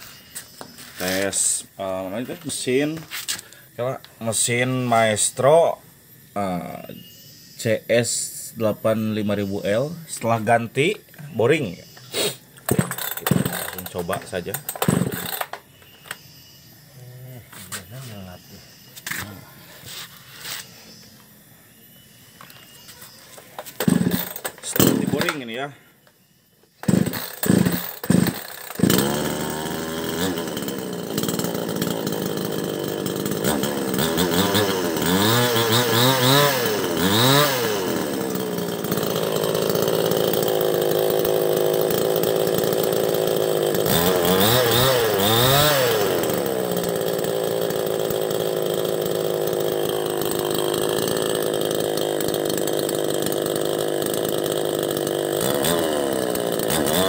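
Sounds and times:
chainsaw engine idling: 0:00.1 - 0:06.9, 0:08.1 - 0:16.2, 0:22.4 - 0:26.0, 0:26.8 - 0:57.0
chainsaw throttle blips: 0:12.5 - 0:16.2, 0:23.7 - 0:25.6, 0:26.8 - 0:57.0
chainsaw pull cord: 0:12.6 - 0:15.6, 0:23.6 - 0:25.6, 0:26.8 - 0:57.0.

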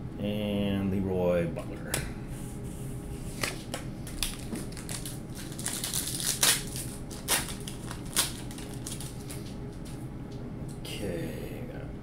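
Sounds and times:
card pack wrapper crinkling: 0:03.4 - 0:09.6.

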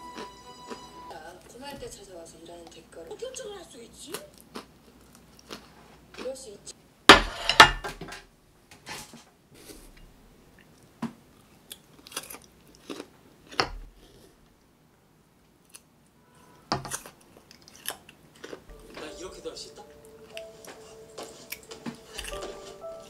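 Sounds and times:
plate clacking on table: 0:07.1 - 0:08.1
crisp bites and chewing: 0:11.6 - 0:14.2, 0:16.9 - 0:18.8.

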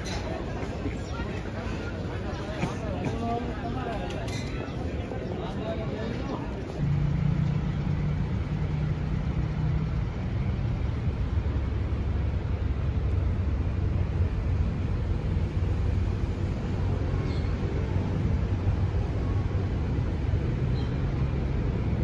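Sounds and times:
steady low rumble: 0:06.7 - 0:22.0.

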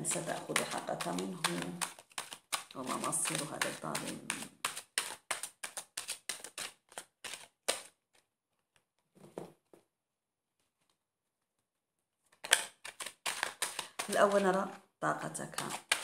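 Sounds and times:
cards being shuffled: 0:00.0 - 0:09.4, 0:12.3 - 0:14.6, 0:15.5 - 0:16.0.

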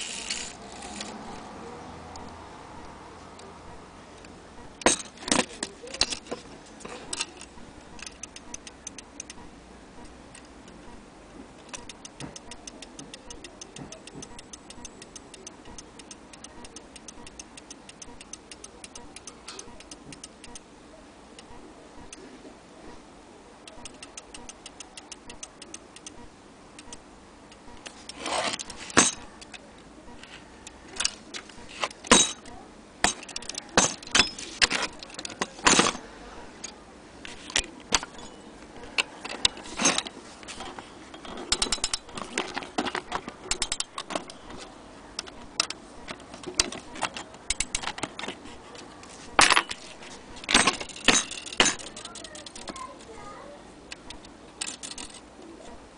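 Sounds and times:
metal clock parts clinking: 0:00.0 - 0:01.4, 0:04.8 - 0:09.4, 0:27.8 - 0:29.6, 0:30.7 - 0:44.6, 0:45.2 - 0:48.4, 0:49.4 - 0:53.1, 0:53.9 - 0:55.3
pendulum clock ticking: 0:02.1 - 0:05.1, 0:07.1 - 0:20.7, 0:21.4 - 0:22.2, 0:23.6 - 0:35.3, 0:41.4 - 0:48.2, 0:49.3 - 0:53.0, 0:53.9 - 0:55.2.

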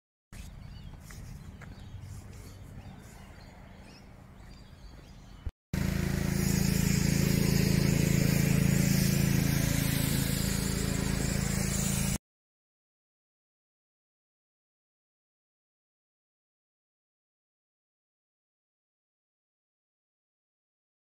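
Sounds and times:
motor humming: 0:05.8 - 0:12.2.

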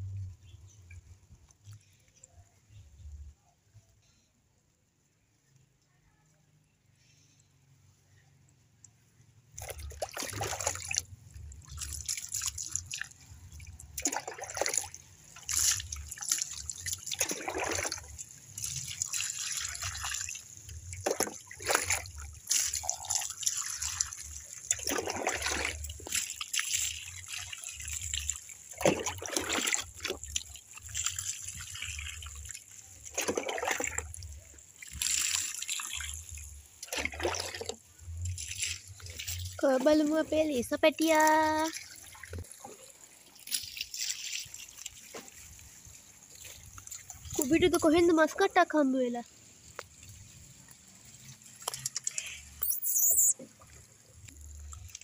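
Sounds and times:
water pouring and splashing: 0:08.8 - 0:55.0.

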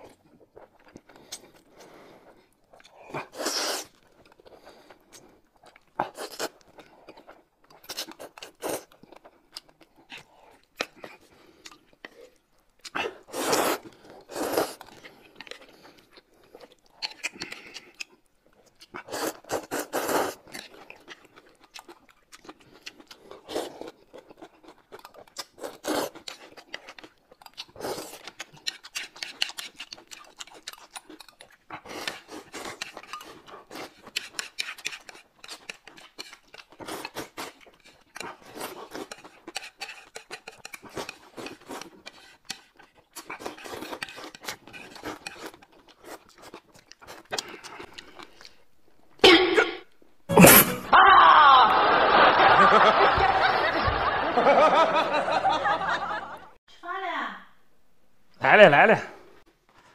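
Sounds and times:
chewing: 0:00.0 - 0:49.2
slurping noodles: 0:01.0 - 0:05.2, 0:12.9 - 0:18.0, 0:18.9 - 0:21.2, 0:22.6 - 0:24.1, 0:25.4 - 0:30.6, 0:31.7 - 0:48.6.

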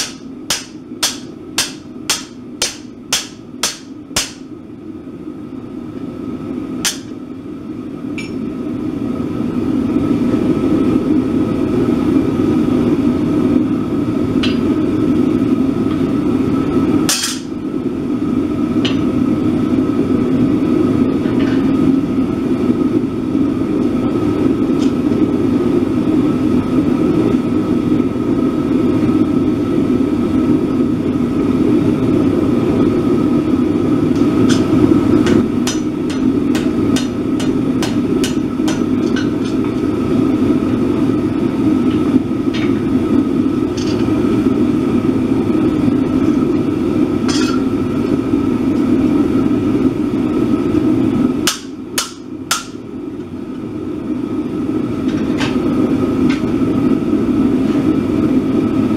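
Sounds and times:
hammer striking steel on anvil: 0:00.0 - 0:04.5, 0:06.8 - 0:07.2, 0:08.2 - 0:08.4, 0:17.1 - 0:17.5, 0:34.2 - 0:39.8, 0:47.3 - 0:47.7, 0:51.5 - 0:52.8.

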